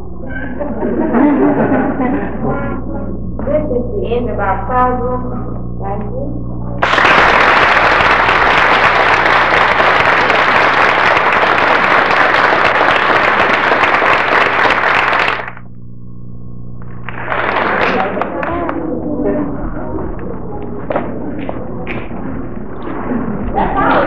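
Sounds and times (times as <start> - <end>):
steady low hum: 0.0 - 24.0
audience applauding: 6.8 - 15.6, 17.0 - 18.8.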